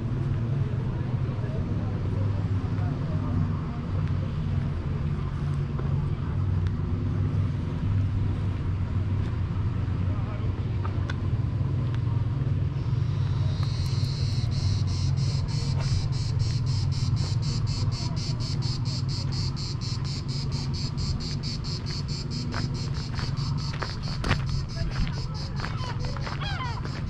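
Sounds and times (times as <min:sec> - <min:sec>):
cicada singing: 0:12.6 - 0:27.0.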